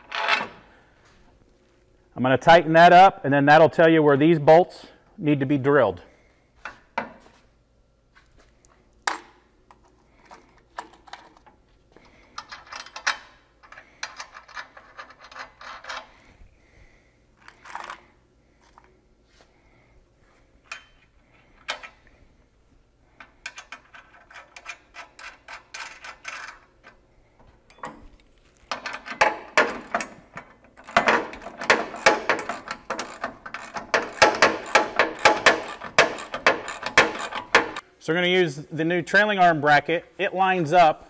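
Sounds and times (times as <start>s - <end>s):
ratchet wrench clicking: 30.8s - 37.8s.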